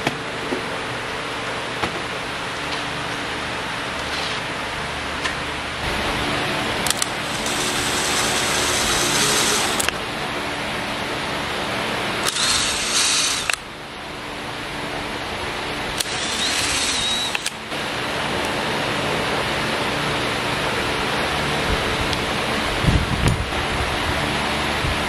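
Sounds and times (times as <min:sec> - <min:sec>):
cordless drill driving screws: 0:06.9 - 0:10.0, 0:12.2 - 0:13.6, 0:16.0 - 0:17.7.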